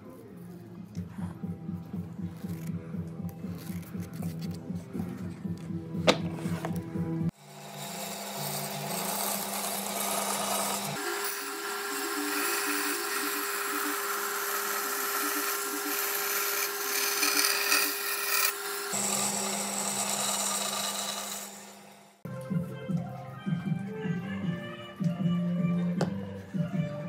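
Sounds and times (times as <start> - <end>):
band saw cutting wood: 6.6 - 22.2.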